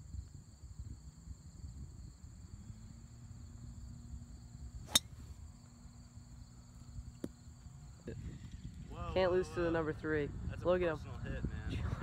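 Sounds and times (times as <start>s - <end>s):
golf club striking ball: 4.8s - 5.4s.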